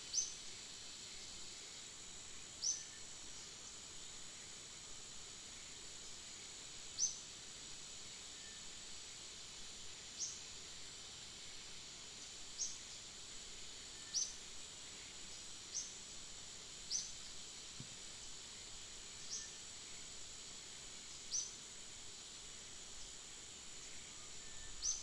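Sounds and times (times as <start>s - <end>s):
insect drone: 0.0s - 25.0s.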